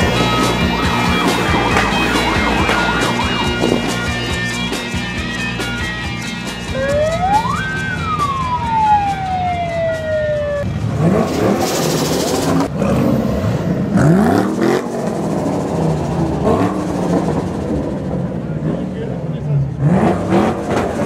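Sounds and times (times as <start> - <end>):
siren winding up and down: 0.0 - 10.7
car engines revving: 0.0 - 21.0.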